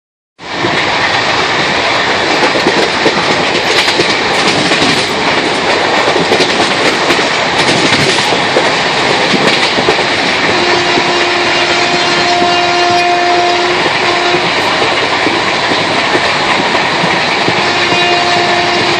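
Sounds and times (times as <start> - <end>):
train rumbling: 0.4 - 18.9
train wheel clicks: 0.6 - 11.3, 13.7 - 18.9
train horn: 10.4 - 15.0, 17.6 - 18.9.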